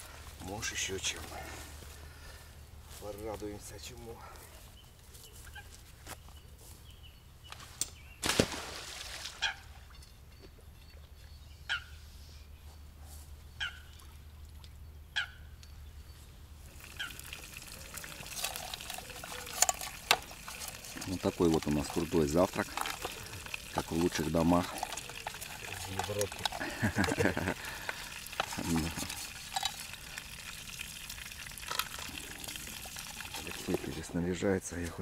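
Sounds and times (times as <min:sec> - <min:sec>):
water splashing: 0:08.2 - 0:09.8, 0:16.6 - 0:34.1.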